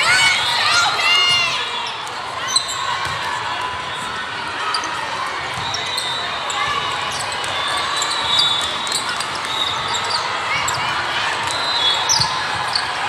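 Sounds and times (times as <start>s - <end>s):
athletic shoes squeaking: 1.8s - 3.2s, 3.9s - 13.0s.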